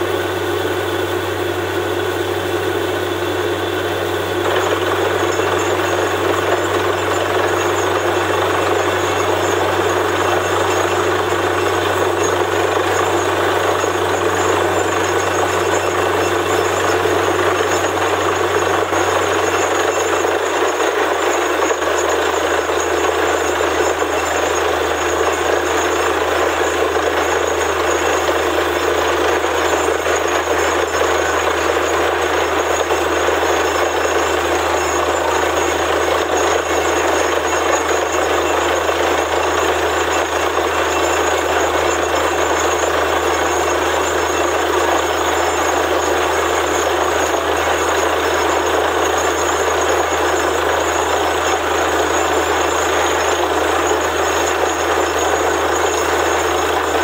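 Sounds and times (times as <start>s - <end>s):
drilling rig engine running: 0.0s - 57.0s.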